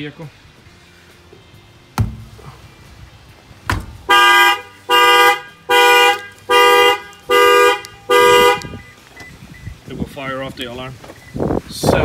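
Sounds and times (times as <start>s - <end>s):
fist knocking on car wheel: 2.0s - 2.4s, 3.7s - 4.0s
car horn honks: 4.0s - 9.0s.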